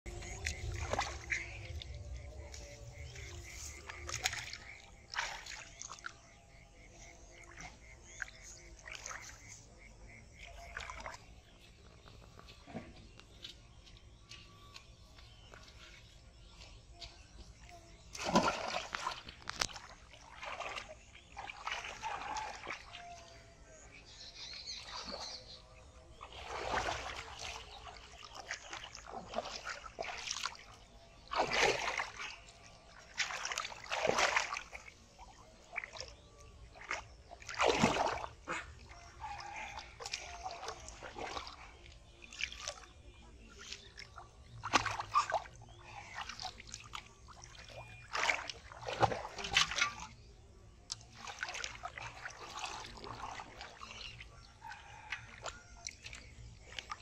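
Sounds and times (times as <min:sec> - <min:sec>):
splashing shallow water: 0:00.0 - 0:57.0
water sloshing in metal pot: 0:26.2 - 0:34.9, 0:35.6 - 0:50.3, 0:51.0 - 0:57.0.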